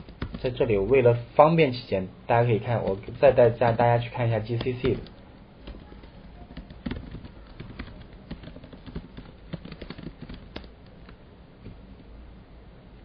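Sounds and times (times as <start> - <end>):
keyboard keys clicking: 0.0 - 0.6, 4.5 - 11.8.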